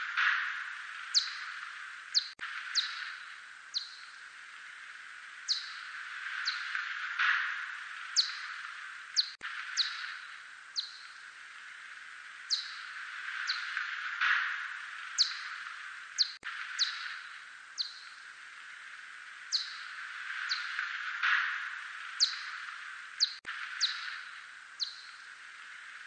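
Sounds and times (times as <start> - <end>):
steady hiss: 0.0 - 26.0
bat echolocation chirps: 0.4 - 18.3, 19.4 - 20.9, 21.6 - 26.0.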